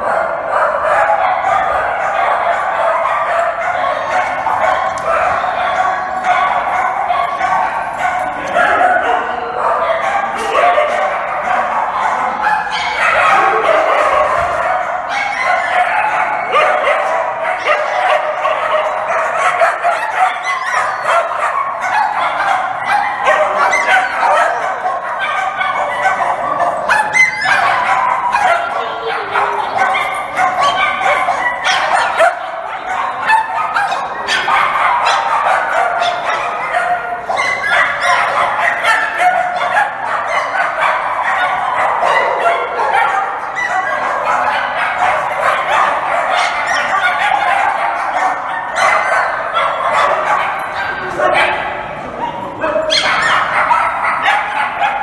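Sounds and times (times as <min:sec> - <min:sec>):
pack of dogs barking: 0:00.0 - 0:55.0.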